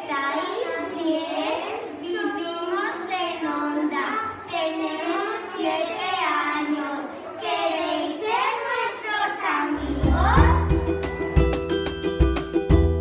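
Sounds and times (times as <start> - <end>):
children singing: 4.6 - 10.9.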